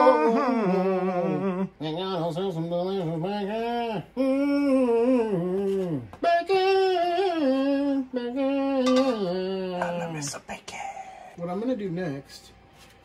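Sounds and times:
man singing: 0.0s - 10.1s.

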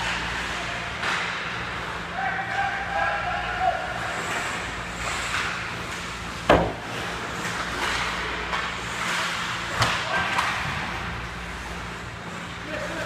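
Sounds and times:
skate blades scraping ice: 4.1s - 6.3s, 6.9s - 10.7s
puck or stick knocks: 6.5s - 6.9s.

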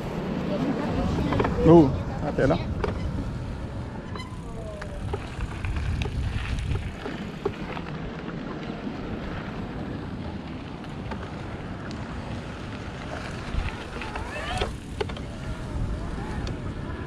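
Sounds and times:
tyres on gravel: 0.0s - 17.0s
wind rumble on microphone: 0.0s - 17.0s
bike clicks and rattles: 2.7s - 3.2s, 4.0s - 8.7s, 10.4s - 17.0s.

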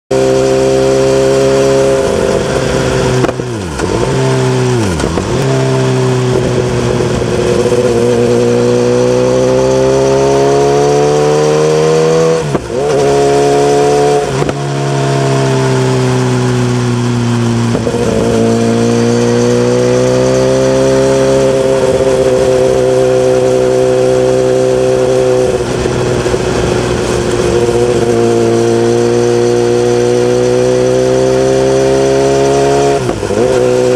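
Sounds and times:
motorcycle engine under throttle: 0.1s - 33.9s.

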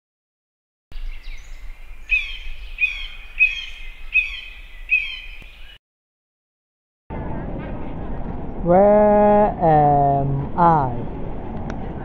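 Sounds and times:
bird chirping: 0.9s - 5.8s.

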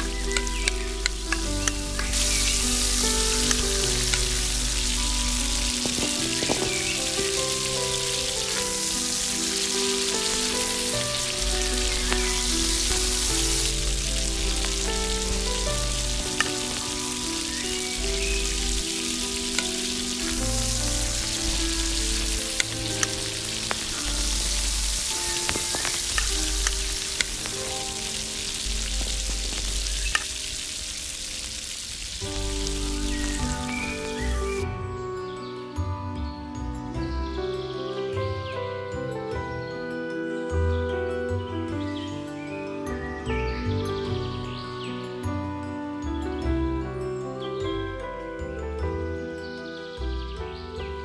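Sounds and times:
egg sizzling in wok: 0.0s - 34.6s
soft background music: 0.0s - 51.0s.

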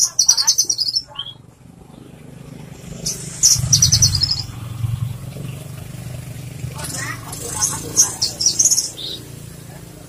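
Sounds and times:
bird singing: 0.0s - 9.4s
low rumble: 2.6s - 7.3s
fast high bird trill: 2.9s - 5.7s.

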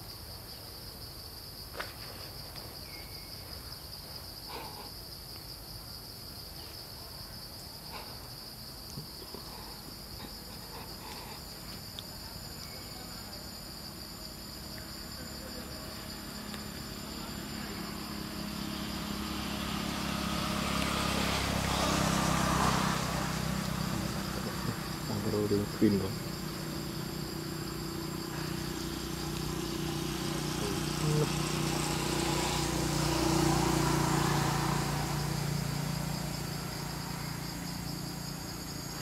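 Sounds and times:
insects droning: 0.0s - 39.0s
vehicle engine approaching: 13.9s - 39.0s.

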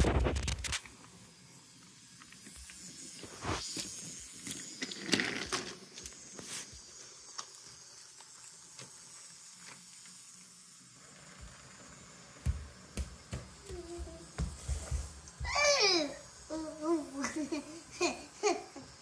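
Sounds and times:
toy train rattling on track: 0.5s - 14.9s
toy train knocks: 12.3s - 15.6s.

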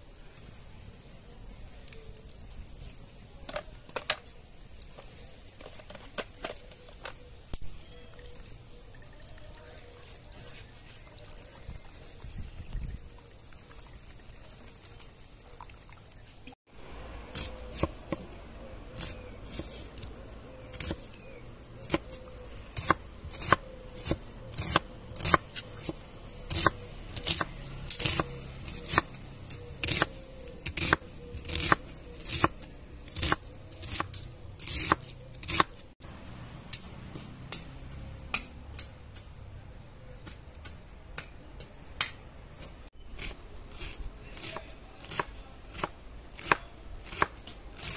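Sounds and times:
pot simmering and bubbling: 0.0s - 22.5s.

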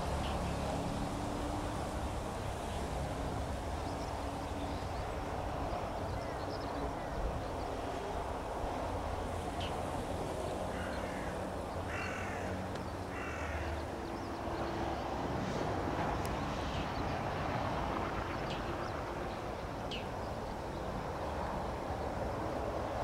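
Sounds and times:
distant jet noise: 0.0s - 23.0s
bird cawing: 10.7s - 13.8s.

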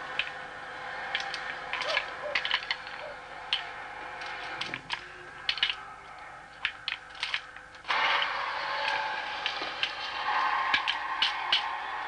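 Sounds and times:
faint steady hum: 0.0s - 12.0s
steady rushing noise: 7.8s - 12.0s.

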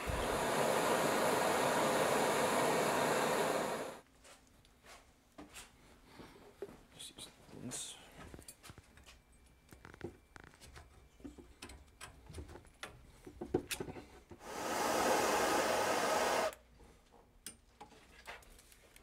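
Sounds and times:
propane torch hissing: 0.0s - 4.0s, 14.4s - 16.6s.

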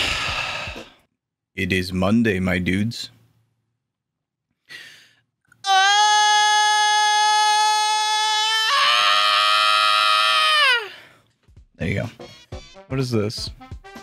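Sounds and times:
breath in: 0.0s - 1.0s, 4.7s - 5.2s
man screaming: 5.6s - 11.1s.

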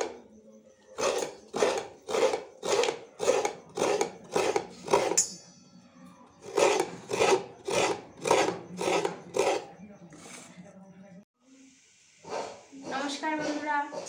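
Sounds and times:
coconut scraping rasps: 0.9s - 5.5s, 6.4s - 10.3s.

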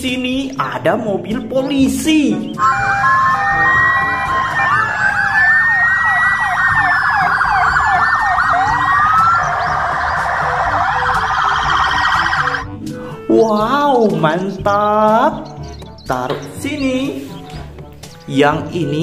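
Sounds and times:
police sirens wailing and yelping: 2.6s - 12.8s.

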